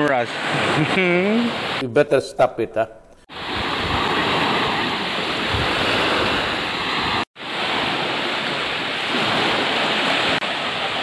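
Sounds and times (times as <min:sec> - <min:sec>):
sea waves washing on shore: 0:00.0 - 0:01.8, 0:03.3 - 0:11.0
wind on microphone: 0:03.3 - 0:10.4.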